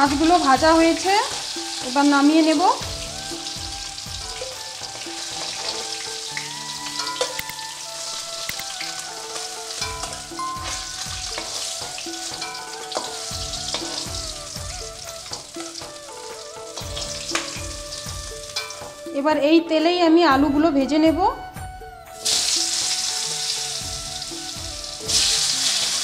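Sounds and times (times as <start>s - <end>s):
fish sizzling in hot oil: 0.0s - 19.1s, 22.2s - 26.0s
metal spatula scraping pan: 4.8s - 6.3s.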